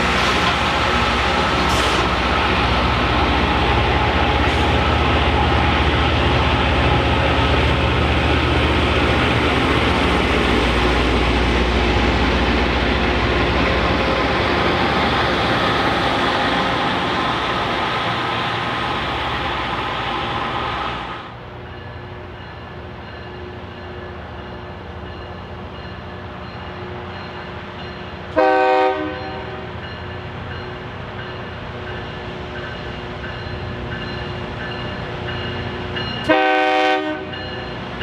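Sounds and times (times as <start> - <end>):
train wheels rolling: 0.0 - 28.3
diesel train engine drone: 0.0 - 38.0.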